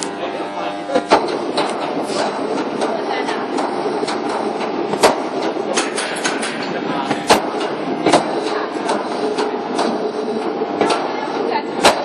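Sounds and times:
machinery hum: 0.0s - 12.0s
metal clanks and knocks: 1.1s - 10.0s.

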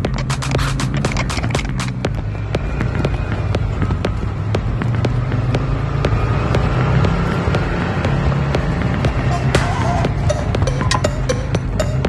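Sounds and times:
background music with clicking beat: 0.0s - 12.0s.

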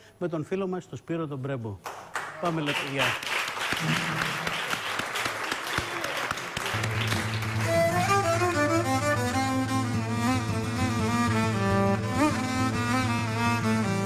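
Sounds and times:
audience applause: 2.1s - 8.6s
violin folk melody: 6.8s - 14.0s.

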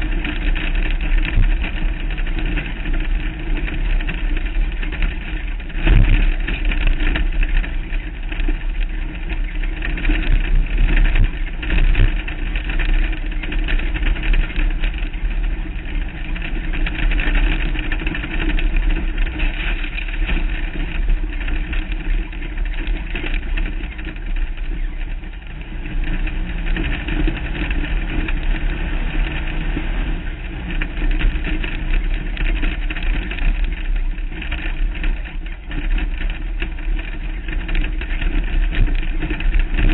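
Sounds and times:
off-road vehicle engine under load: 0.0s - 39.9s
wind noise: 0.0s - 39.9s.

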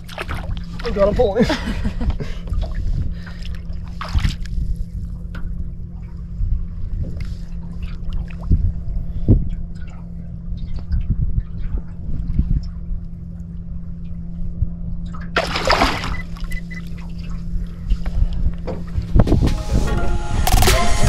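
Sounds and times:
water sloshing: 0.0s - 1.4s, 2.5s - 14.3s, 15.0s - 18.0s
boat engine rumble: 0.0s - 21.0s.

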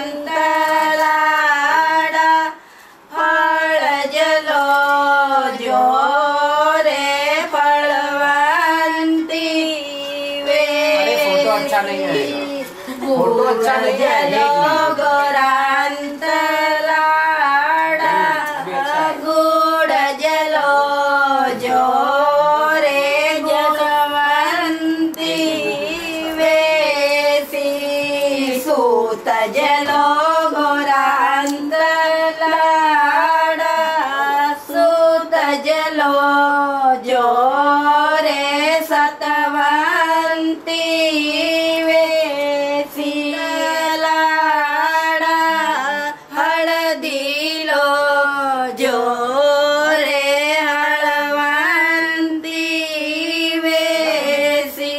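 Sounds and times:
woman singing slow melody: 0.0s - 54.9s.

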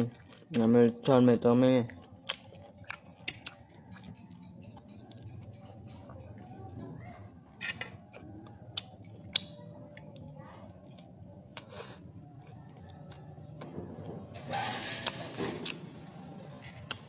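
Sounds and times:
chewing crackles: 0.0s - 0.9s, 1.7s - 14.3s, 15.0s - 17.0s
faint low hum: 0.0s - 17.0s
fingers pulling meat apart: 2.0s - 5.3s.

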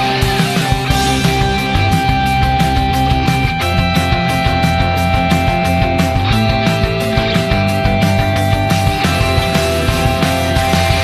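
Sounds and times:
rock music: 0.0s - 11.0s.

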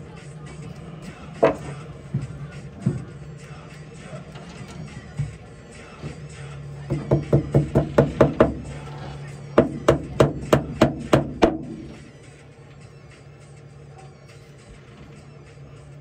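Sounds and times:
hammer blows: 0.6s - 12.1s.

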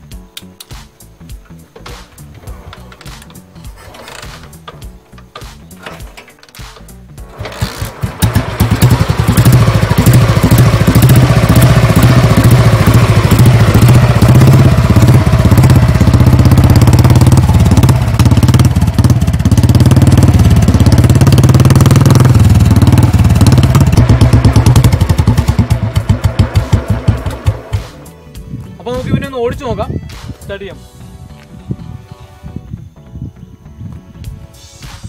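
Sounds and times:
motorcycle engine running: 7.1s - 28.1s.

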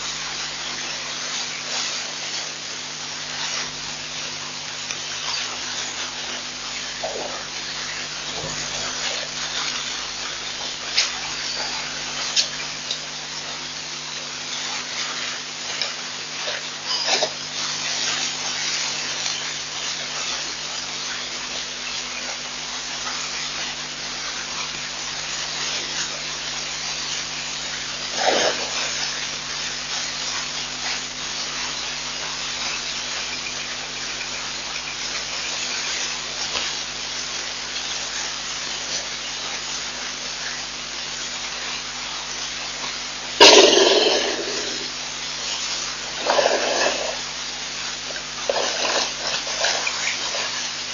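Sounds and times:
low electrical hum: 0.0s - 50.9s
steady hiss: 0.0s - 50.9s
brief loud noise: 43.4s - 44.9s.

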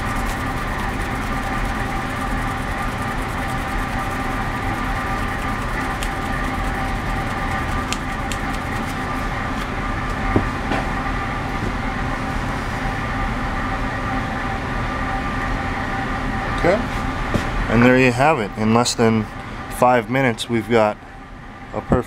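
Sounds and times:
belt sander motor running: 0.0s - 9.7s.

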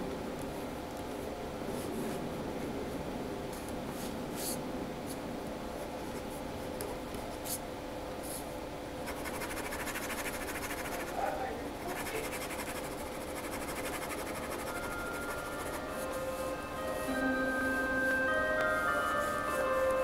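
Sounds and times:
faint steady hum: 0.0s - 20.0s
pen scratching on paper: 9.1s - 14.7s.

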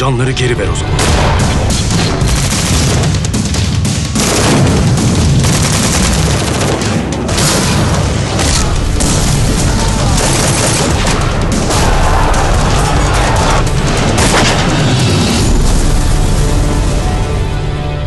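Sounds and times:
booming explosions: 0.9s - 16.9s
rapid automatic gunfire: 1.9s - 15.3s.

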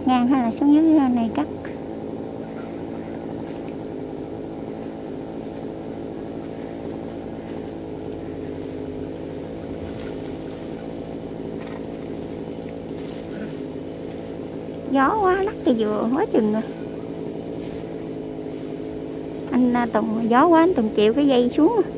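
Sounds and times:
two-stroke chainsaw running: 0.0s - 21.9s.

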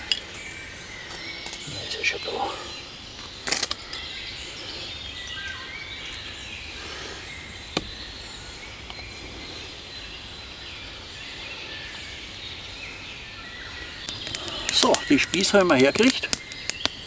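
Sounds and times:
birds singing: 0.0s - 17.0s.

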